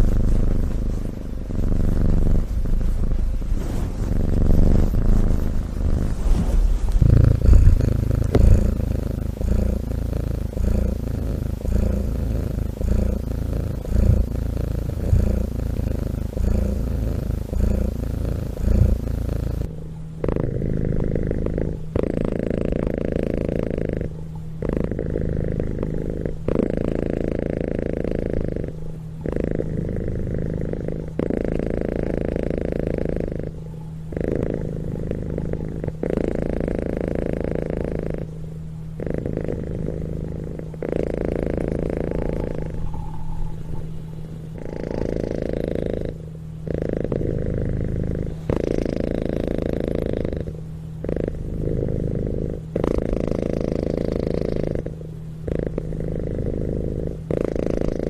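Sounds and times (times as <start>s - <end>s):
cat purring: 0.0s - 58.0s.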